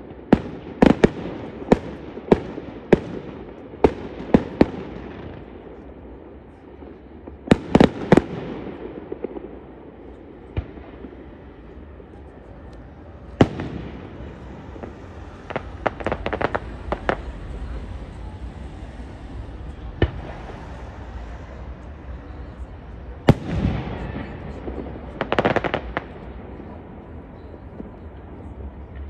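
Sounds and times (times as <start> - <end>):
steady low rumble: 8.2 - 29.0
firework shells bursting: 12.6 - 22.2.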